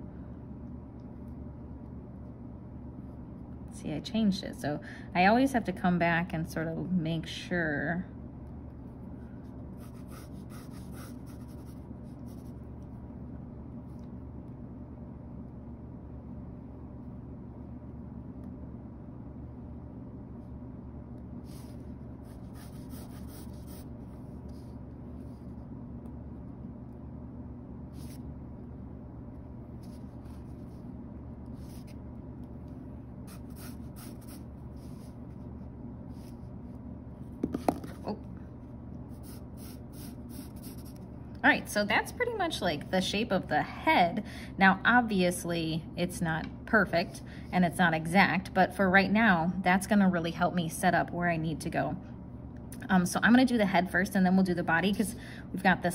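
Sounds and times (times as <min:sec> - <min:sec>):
steady low hum: 0:00.0 - 0:55.9
pencil scratching on paper: 0:09.8 - 0:12.6, 0:21.5 - 0:23.9, 0:33.3 - 0:35.1, 0:39.2 - 0:41.0.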